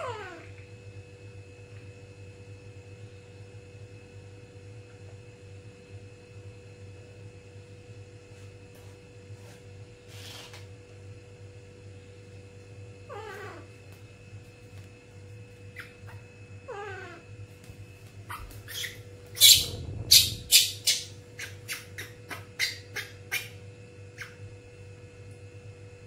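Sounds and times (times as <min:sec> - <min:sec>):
baby monkey crying: 0:00.0 - 0:00.5, 0:13.1 - 0:13.7, 0:15.7 - 0:17.3, 0:18.3 - 0:23.6.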